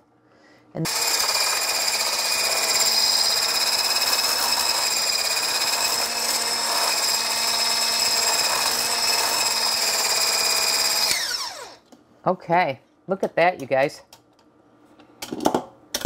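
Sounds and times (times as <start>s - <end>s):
immersion blender whine: 0.9s - 11.8s.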